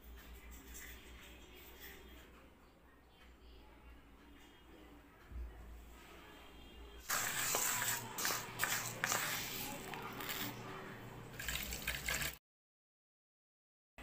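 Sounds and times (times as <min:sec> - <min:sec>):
water splashing into a bowl: 0:11.3 - 0:12.4.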